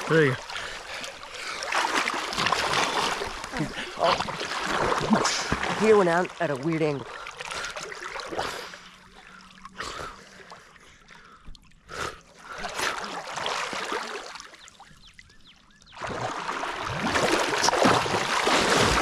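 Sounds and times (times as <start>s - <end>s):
loud churning splashes: 0.0s - 8.8s, 12.5s - 14.5s, 16.0s - 19.0s
water lapping and sloshing: 0.0s - 19.0s.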